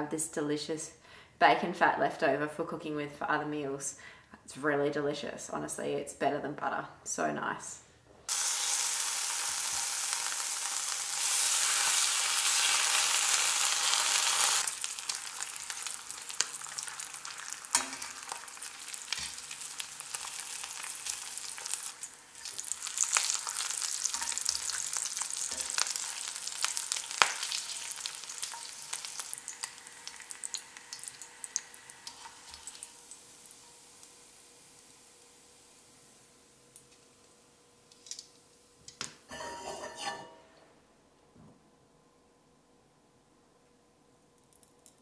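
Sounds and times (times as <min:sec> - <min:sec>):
bacon sizzling in a skillet: 0:08.3 - 0:36.5.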